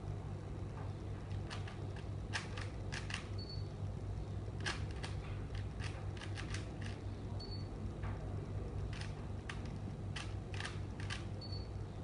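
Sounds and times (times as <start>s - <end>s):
steady low hum: 0.0s - 12.0s
plastic puzzle cube clicking: 4.6s - 7.0s, 8.9s - 11.3s.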